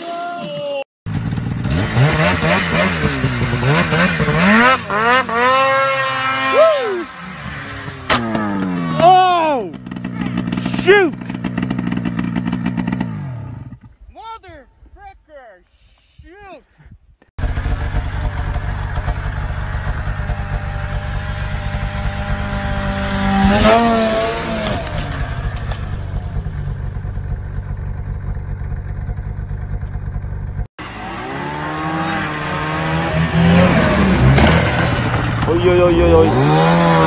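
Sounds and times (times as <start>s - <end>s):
snowmobile engine running: 1.1s - 13.8s, 17.4s - 37.0s
snowmobile engine revving: 1.1s - 14.0s, 17.4s - 27.8s, 30.8s - 37.0s.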